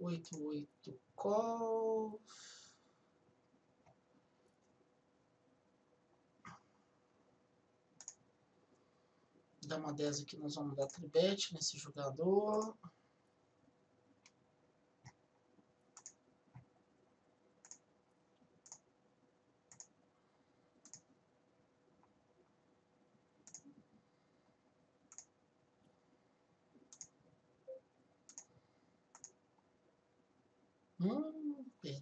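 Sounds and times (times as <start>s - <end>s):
low steady hum: 0.0s - 32.0s
computer mouse clicks: 8.0s - 8.2s, 12.5s - 12.9s, 15.9s - 16.7s, 17.6s - 17.9s, 18.6s - 18.9s, 19.7s - 20.0s, 20.8s - 21.1s, 23.4s - 23.8s, 25.1s - 25.4s, 26.8s - 27.2s, 28.3s - 29.4s.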